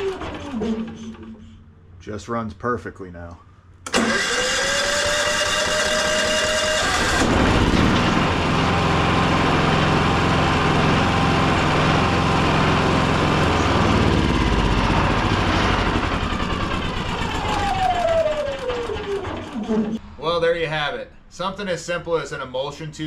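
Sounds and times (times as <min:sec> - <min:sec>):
generator engine running: 0:00.0 - 0:01.6, 0:03.9 - 0:20.0.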